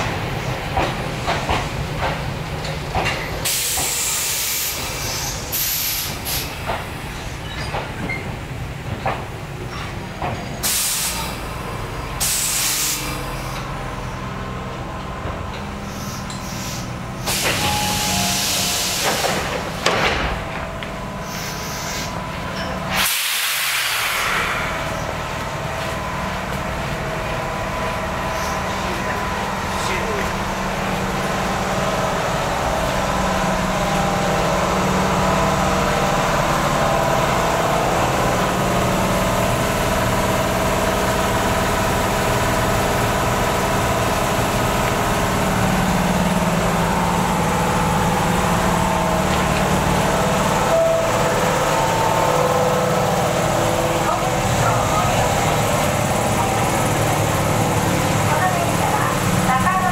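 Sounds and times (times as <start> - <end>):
train low hum: 0.0 - 59.9
compressed air hissing: 15.9 - 19.5, 22.9 - 24.8.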